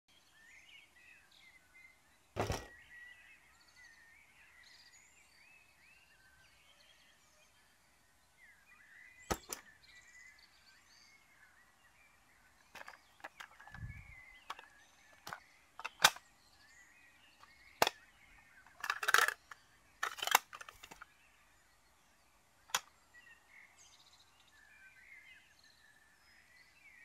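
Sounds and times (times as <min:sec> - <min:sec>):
birds chirping faintly: 0:00.1 - 0:27.0
plastic toys knocking on wooden table: 0:02.4 - 0:02.7, 0:09.3 - 0:09.6, 0:12.8 - 0:13.9, 0:14.5 - 0:16.2, 0:18.7 - 0:21.0.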